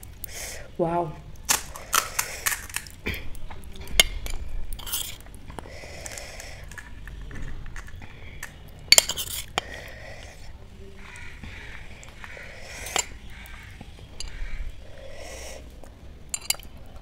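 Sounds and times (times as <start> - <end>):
crisp shell crackling: 1.3 - 10.4
spoon clinking and scraping: 3.9 - 5.3, 7.8 - 9.9, 12.6 - 13.3, 16.3 - 17.0.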